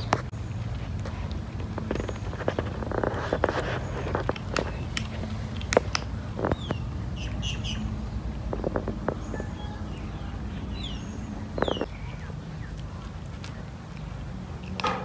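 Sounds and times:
small birds chirping: 0.0s - 14.9s
kitten crunching kibble: 0.4s - 6.8s.

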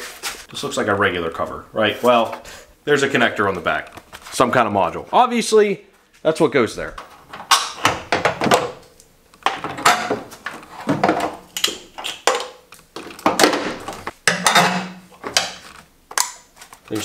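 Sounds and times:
car parts clicking and clattering: 7.0s - 16.4s.

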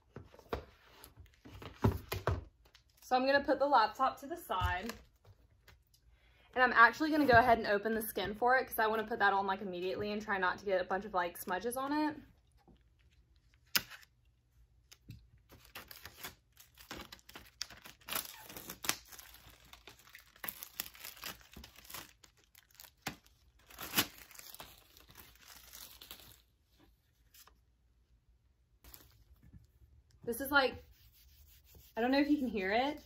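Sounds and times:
packaging ripping and crinkling: 15.5s - 26.5s.

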